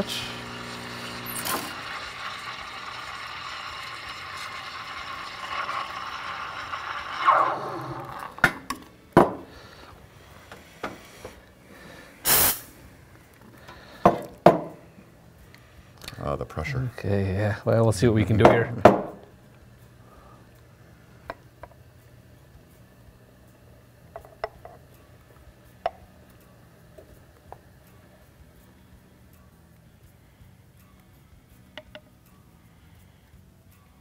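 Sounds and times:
steam wand hissing: 12.2s - 12.7s.

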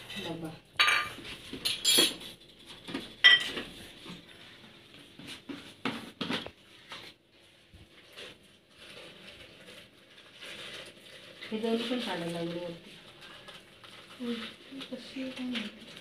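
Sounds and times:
glass jars clinking: 0.8s - 2.3s, 3.2s - 3.6s.

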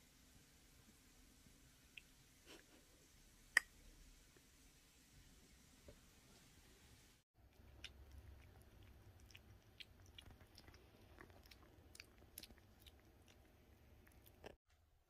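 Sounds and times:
kitten chewing wet food: 7.4s - 14.6s.

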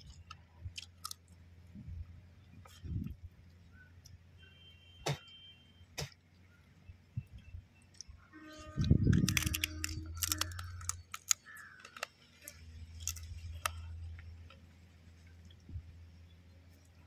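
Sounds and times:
crab shell cracking in mouth: 0.0s - 1.3s, 9.1s - 13.9s.

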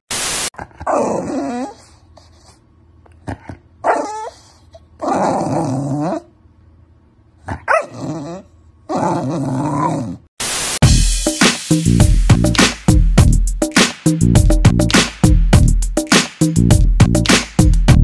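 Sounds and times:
static hiss: 0.1s - 0.5s, 10.4s - 10.9s
dog whining and growling: 0.6s - 2.2s, 3.2s - 6.5s, 7.4s - 10.3s.

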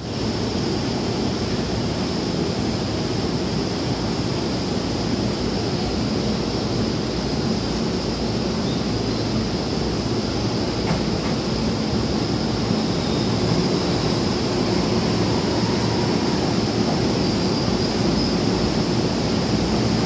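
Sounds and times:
faint high whine: 11.4s - 20.0s.

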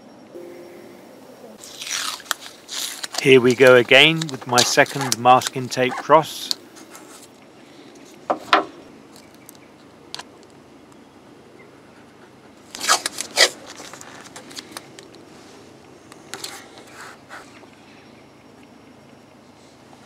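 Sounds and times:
tape rubbing on surface: 1.6s - 3.2s
masking tape tearing: 1.6s - 5.5s, 12.8s - 14.1s.

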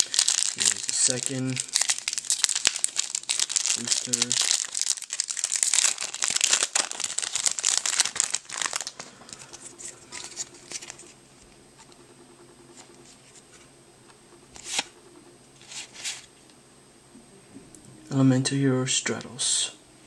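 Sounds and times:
foil pack tearing and crinkling: 0.0s - 9.6s
cards rustling and clicking: 0.0s - 12.0s, 14.5s - 15.0s.

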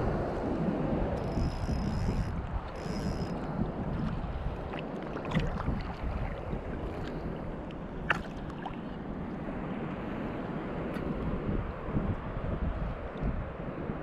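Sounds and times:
wind buffeting microphone: 0.0s - 14.0s
fishing reel whirring: 1.1s - 3.5s.

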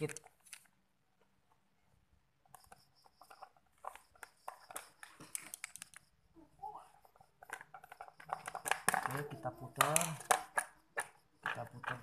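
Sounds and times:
faint clicks taps and scrapes: 2.4s - 6.1s, 7.0s - 12.0s.

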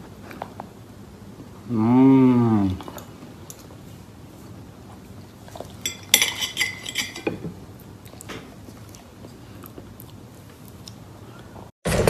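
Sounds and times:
cutlery clinking on a plate: 5.8s - 7.6s.

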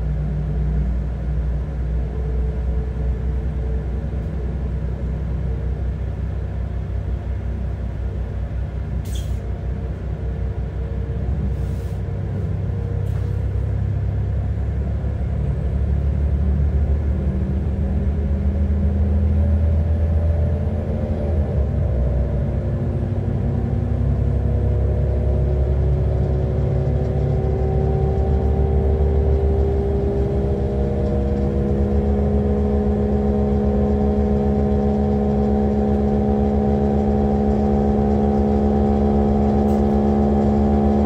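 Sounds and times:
railcar engine drone: 0.0s - 41.0s.

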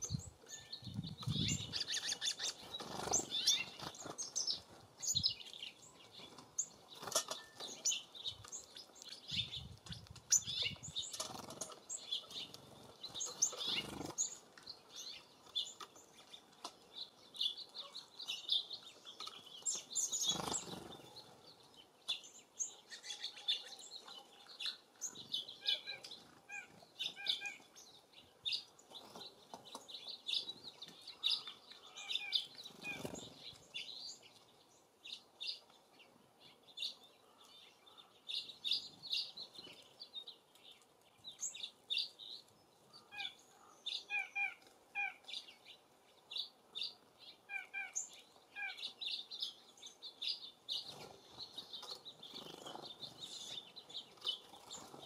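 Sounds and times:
songbirds chirping: 0.0s - 55.0s
wings fluttering: 1.2s - 4.9s, 11.0s - 14.5s, 20.0s - 21.3s, 32.6s - 33.6s, 50.8s - 53.4s.

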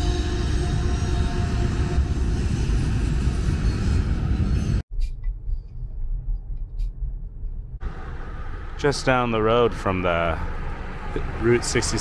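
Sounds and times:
freight train rumbling past: 0.0s - 4.8s
car interior road noise: 5.2s - 12.0s.

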